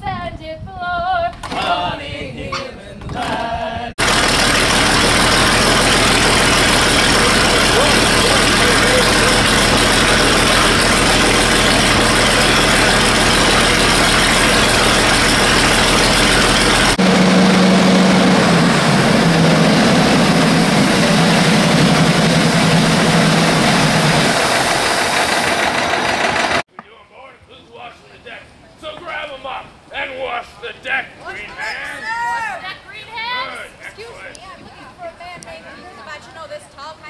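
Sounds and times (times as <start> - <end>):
boat engine low hum: 4.0 - 26.6
old boat engine idling: 4.0 - 26.6.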